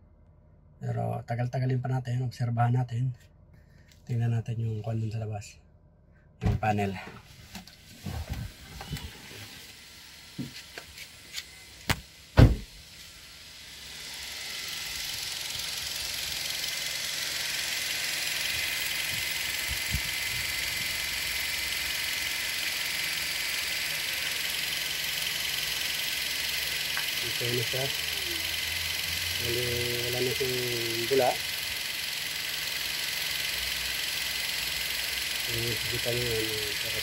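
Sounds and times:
knocks and sharp thumps: 6.4 - 6.7, 11.9 - 12.7
car engine idling with cooling fan: 6.7 - 37.0.

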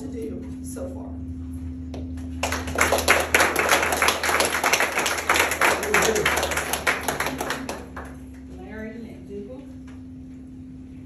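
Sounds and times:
people clapping in applause: 2.3 - 8.4.

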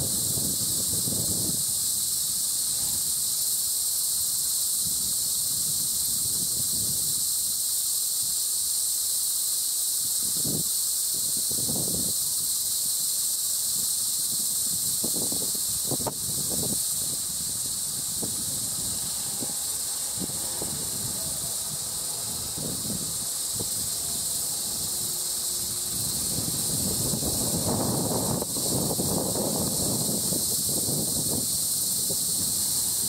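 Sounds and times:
wind buffeting microphone: 0.0 - 3.3, 13.8 - 33.0
insects droning: 0.0 - 33.0.

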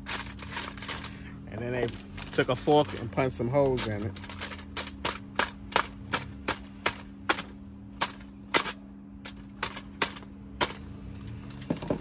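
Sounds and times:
fork stabbing aluminium foil: 0.0 - 1.2.

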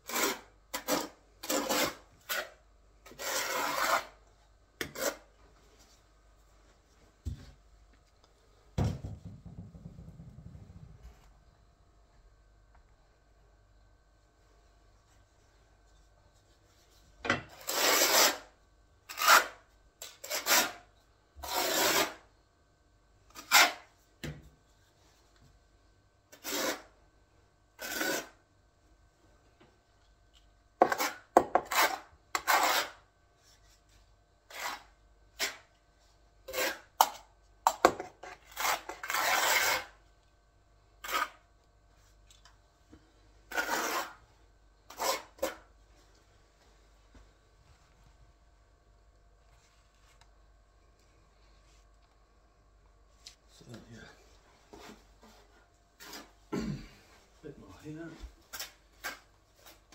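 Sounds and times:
trowel scraping adhesive: 0.0 - 4.2, 4.8 - 5.3, 17.5 - 18.5, 19.1 - 20.8, 21.4 - 22.2, 26.3 - 26.9, 27.8 - 28.4, 30.8 - 33.0, 34.5 - 35.7, 36.5 - 37.0, 38.0 - 40.0, 41.0 - 41.4, 43.5 - 44.2, 44.9 - 45.6.

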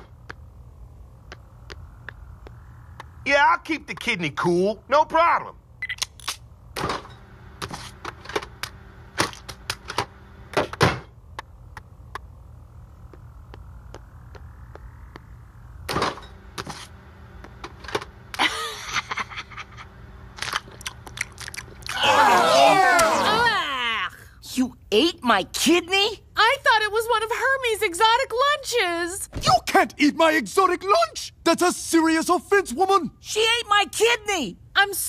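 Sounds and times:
soft rising hum: 0.0 - 23.8
cartoon footsteps clicks and knocks: 13.0 - 15.3.

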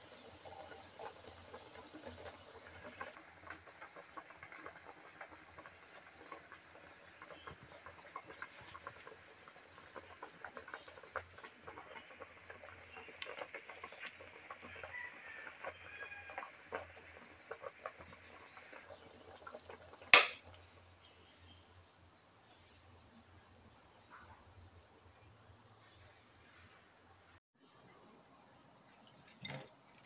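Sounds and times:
broth simmering with pops: 0.0 - 27.4, 28.8 - 30.0
sharp loud click: 20.2 - 20.4.

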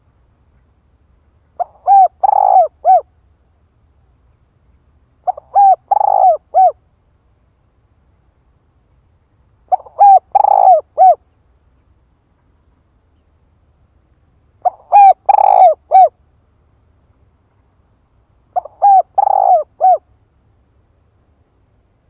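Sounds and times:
dove cooing: 1.6 - 3.1, 5.2 - 6.8, 9.7 - 11.2, 14.6 - 16.2, 18.6 - 20.0.

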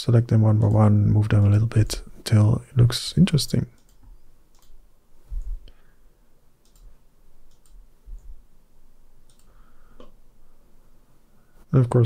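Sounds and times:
computer mouse clicks: 3.7 - 4.8, 6.6 - 8.4, 9.2 - 10.2
soft low thumps: 5.2 - 5.7.

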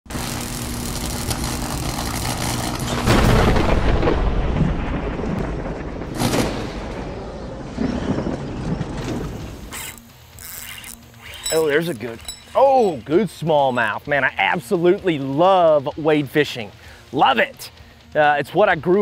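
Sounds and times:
electric crackling: 0.1 - 12.2
heavy boom: 2.9 - 9.7.

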